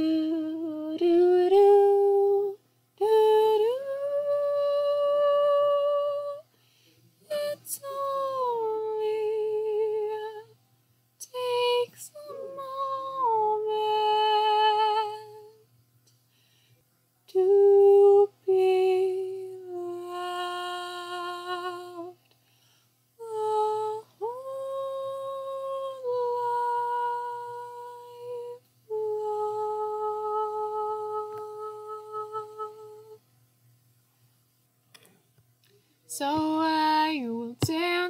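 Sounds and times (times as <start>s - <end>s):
woman humming a melody: 23.2s - 33.2s.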